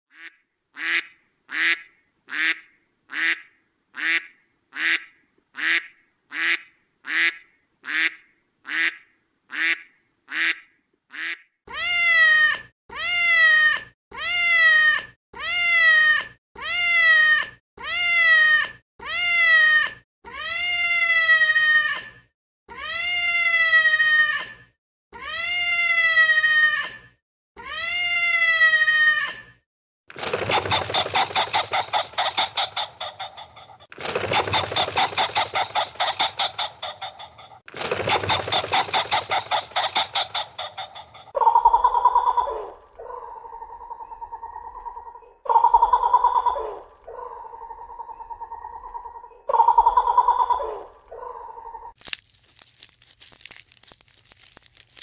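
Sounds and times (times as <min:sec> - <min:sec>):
animal calling: 0:30.1 - 0:51.9.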